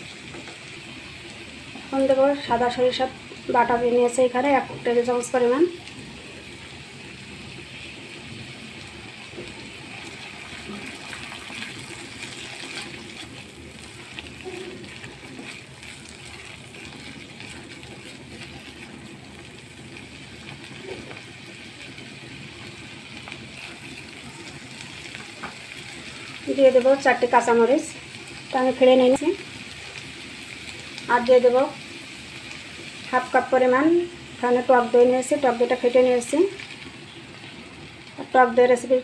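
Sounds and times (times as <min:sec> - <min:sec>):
masala sizzling in oil: 0:00.0 - 0:39.0
spatula stirring scrapes: 0:10.8 - 0:18.9.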